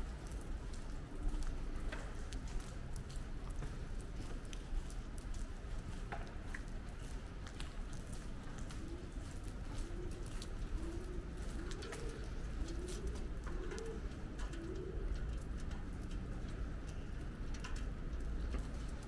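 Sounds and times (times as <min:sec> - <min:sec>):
pigeon cooing: 0:08.7 - 0:15.4.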